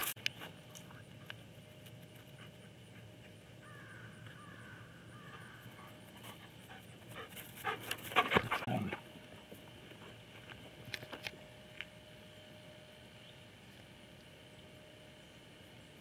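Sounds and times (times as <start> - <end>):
dog panting: 5.8 - 9.0.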